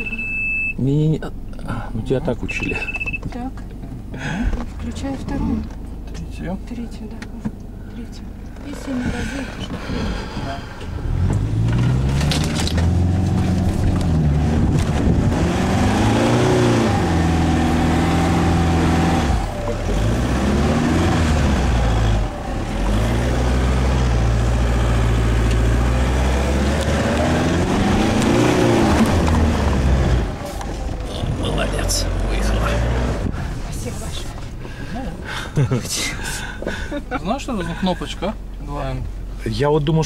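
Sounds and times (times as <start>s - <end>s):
car engine driving through sand: 10.9s - 34.8s.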